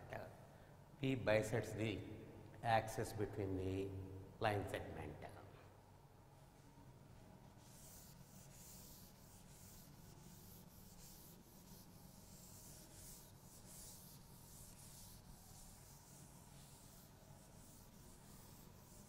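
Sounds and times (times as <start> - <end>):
low room hum: 0.0 - 19.0
duster swishing on chalkboard: 7.4 - 19.0.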